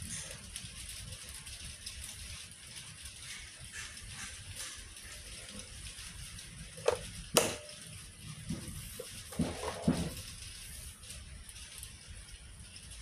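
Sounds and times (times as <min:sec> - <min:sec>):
low steady hiss: 0:05.5 - 0:13.0.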